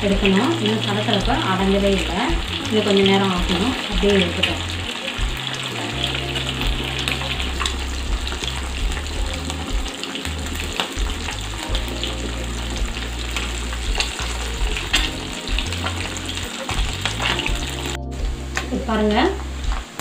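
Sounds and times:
fish deep-frying in hot oil: 0:00.0 - 0:20.0
oil crackling pops: 0:05.1 - 0:17.9.

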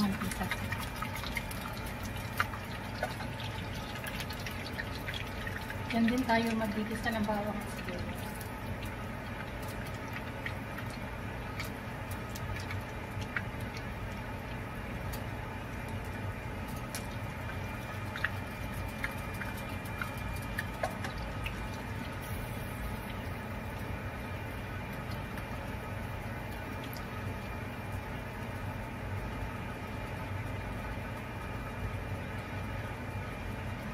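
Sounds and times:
oil popping: 0:00.0 - 0:23.9
oil sizzling in a wok: 0:06.8 - 0:28.4.

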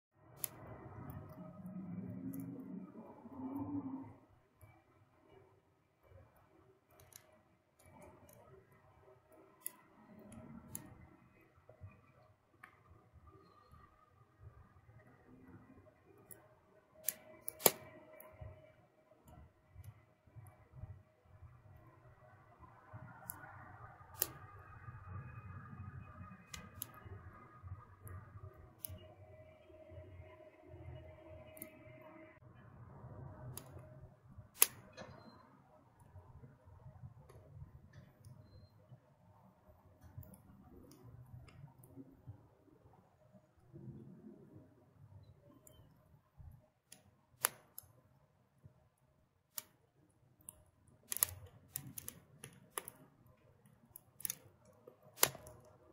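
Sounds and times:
twig fire crackling: 0:17.0 - 0:18.4, 0:22.6 - 0:29.6, 0:50.4 - 0:55.8
wood fire crackling: 0:50.4 - 0:52.9, 0:54.0 - 0:55.7.

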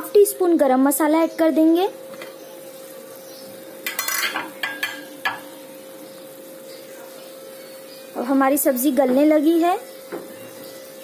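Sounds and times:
vegetables sizzling: 0:00.0 - 0:11.0
utensils clinking on metal pot: 0:03.8 - 0:05.5.

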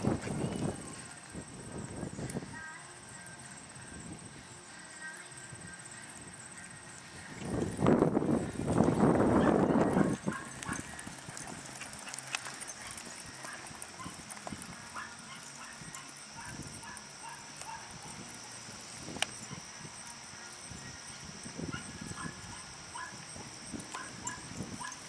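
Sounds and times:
horse hoofbeats on dirt: 0:06.6 - 0:20.2.

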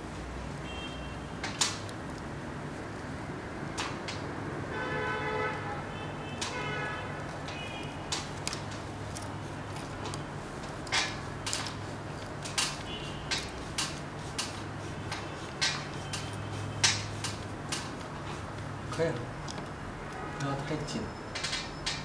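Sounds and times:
screwdriver clicking and creaking: 0:07.2 - 0:20.5.

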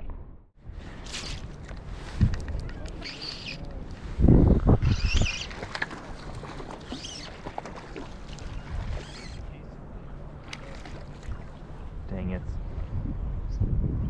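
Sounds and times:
lake water lapping: 0:05.0 - 0:12.1.

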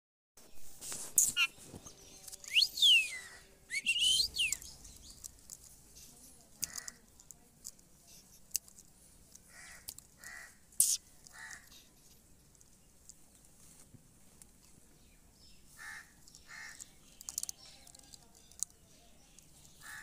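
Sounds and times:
parakeet chirps: 0:01.2 - 0:01.6, 0:10.8 - 0:11.0.

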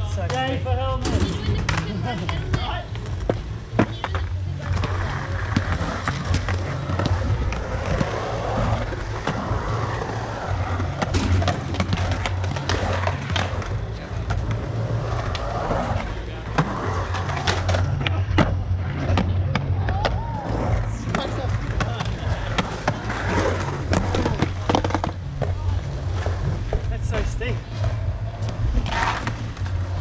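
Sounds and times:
skateboard wheels rolling on concrete: 0:00.0 - 0:30.0
skateboard clacks and knocks: 0:00.3 - 0:08.2.

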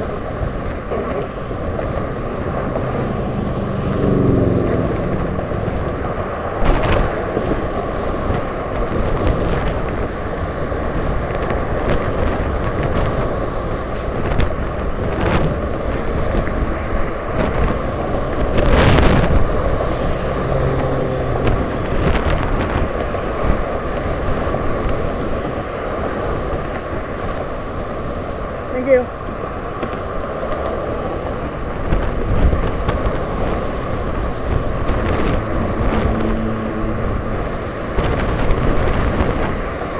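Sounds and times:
road traffic passing: 0:00.0 - 0:39.9
wind on microphone: 0:00.0 - 0:39.9.

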